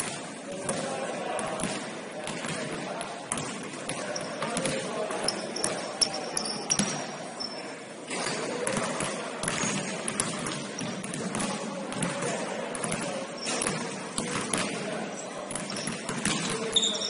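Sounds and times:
players and hall noise: 0.0 - 17.0
basketball bouncing on court: 0.6 - 4.9, 8.6 - 14.8, 15.5 - 16.9.

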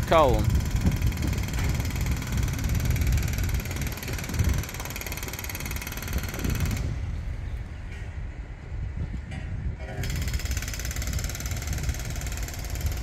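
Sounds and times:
diesel train engine running: 0.0 - 9.0
wind rumble on microphone: 0.0 - 13.0.

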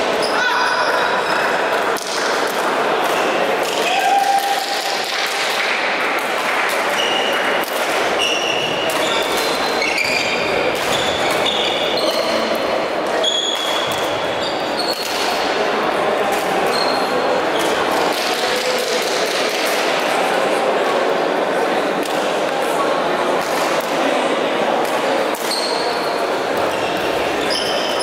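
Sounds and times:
rackets striking shuttlecock: 6.2 - 10.0, 10.7 - 12.4
shoes squeaking on floor: 8.1 - 12.5, 13.1 - 15.3, 16.6 - 17.8, 25.4 - 28.0.

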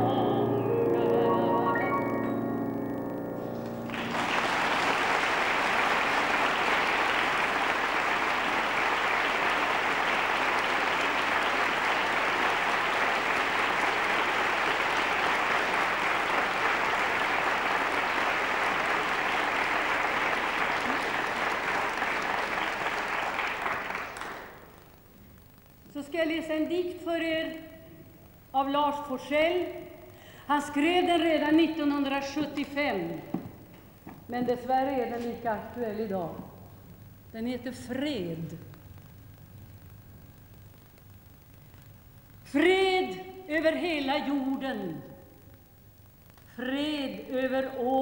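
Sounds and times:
woman singing with piano: 0.0 - 2.4
audience applause: 3.4 - 24.8.

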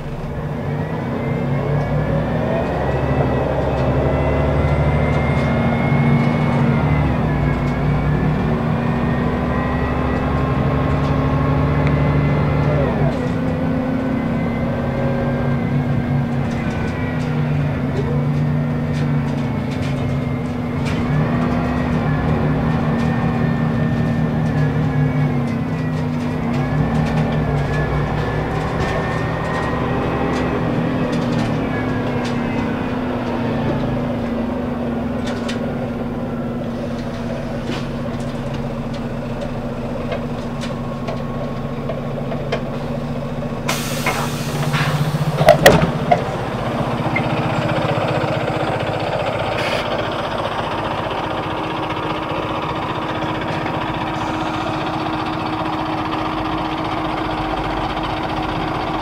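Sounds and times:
bus diesel engine running: 0.0 - 59.0
compressed air hiss: 43.7 - 45.4
loud clunks: 43.7 - 46.4.

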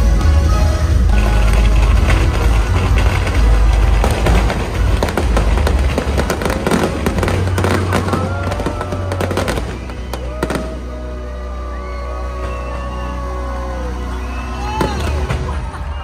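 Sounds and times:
fireworks crackling and banging: 0.0 - 11.1, 14.7 - 16.0
bass-heavy show music: 0.0 - 16.0.

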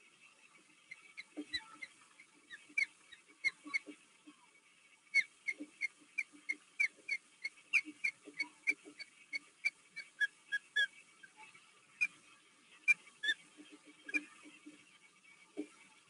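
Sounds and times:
ospreys chirping: 0.8 - 4.0, 5.1 - 12.2, 12.8 - 14.8.

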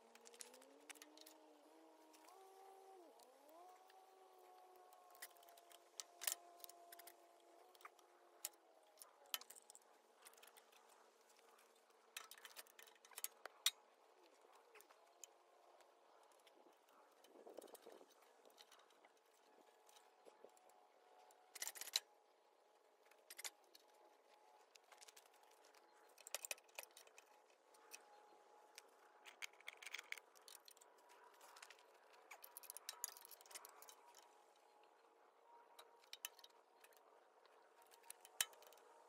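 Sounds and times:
metallic clicks of tools: 4.8 - 15.4, 21.5 - 22.1, 24.9 - 34.3, 35.8 - 37.0, 37.8 - 38.9.

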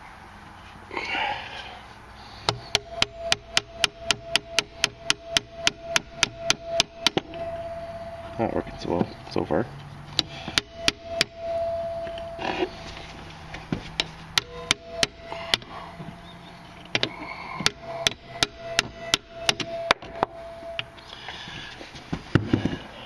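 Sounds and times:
hammer striking metal socket: 2.5 - 7.4, 14.0 - 15.7, 16.8 - 20.9.

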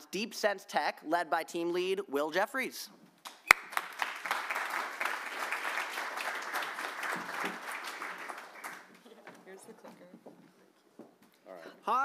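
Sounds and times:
audience applauding: 3.3 - 9.1.

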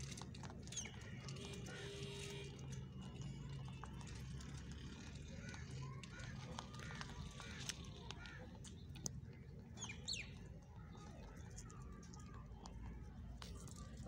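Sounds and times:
sharp small clicks: 0.0 - 10.4
rabbits nibbling feed sticks: 0.0 - 14.0
birds chirping: 0.6 - 1.9, 5.2 - 12.4.

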